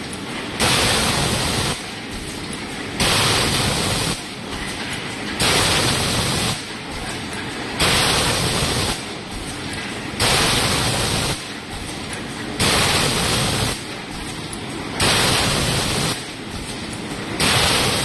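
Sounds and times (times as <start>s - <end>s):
machine mechanical hum: 0.0s - 18.0s
compressed-air hiss: 12.6s - 13.8s, 15.0s - 16.3s.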